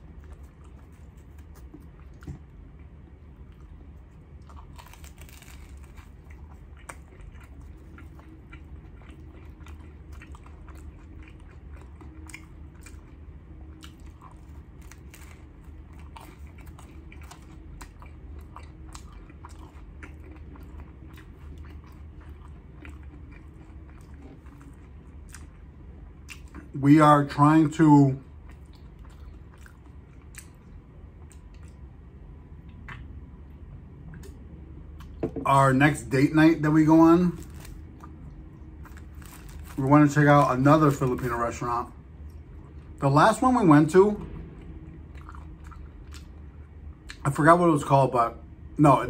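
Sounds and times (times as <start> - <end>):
crunching of sandwich crust: 0.0 - 26.8, 36.8 - 41.8
low steady hum: 0.0 - 49.0.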